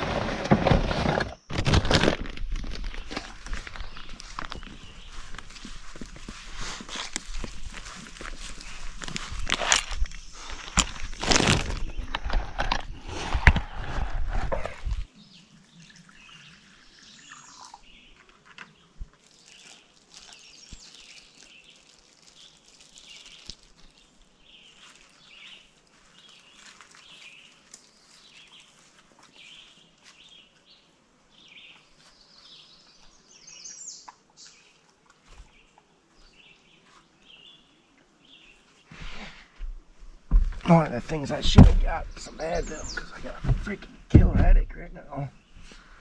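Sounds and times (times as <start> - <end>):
songbirds chirping and singing: 2.7 - 12.8, 13.5 - 39.0, 40.3 - 45.9.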